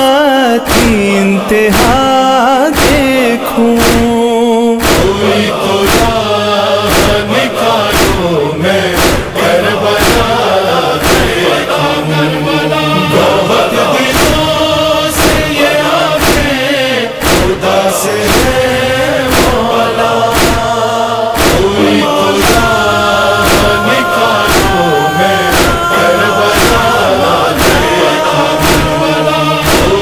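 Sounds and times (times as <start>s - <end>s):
men chanting in chorus: 0.0s - 30.0s
steady beat: 0.7s - 12.3s, 12.9s - 30.0s.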